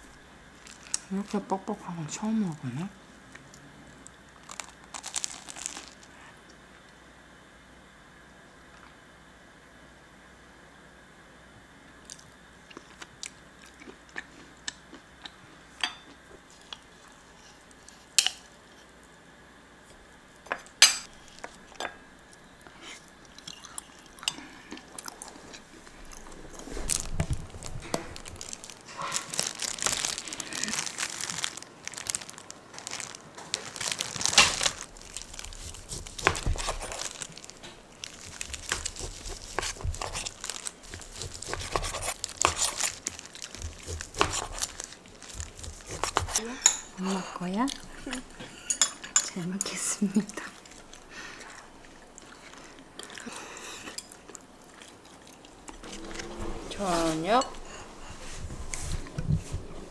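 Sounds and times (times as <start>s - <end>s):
plastic glove and bag crinkling: 0.0s - 2.8s, 4.4s - 6.3s, 25.2s - 48.4s
chewing: 12.1s - 15.4s, 21.2s - 31.6s, 33.8s - 47.0s, 47.6s - 56.2s.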